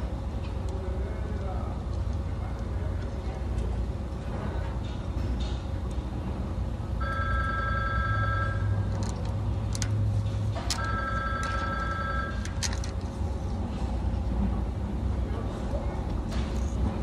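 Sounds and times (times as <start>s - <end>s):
steady low hum: 0.0s - 17.0s
phone ringing: 7.0s - 8.9s, 10.7s - 12.6s.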